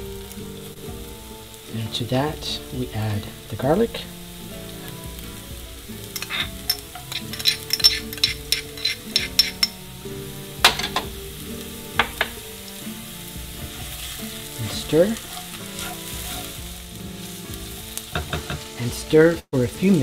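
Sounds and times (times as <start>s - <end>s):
onion sizzling in hot oil: 0.0s - 20.0s
utensil scraping a pan: 6.0s - 9.9s, 13.6s - 18.8s.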